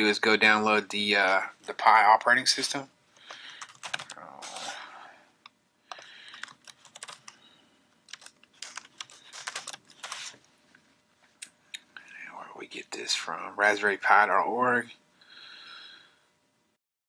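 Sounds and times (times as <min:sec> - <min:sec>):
computer keyboard typing: 0:03.5 - 0:04.7, 0:05.9 - 0:07.4, 0:08.1 - 0:10.3.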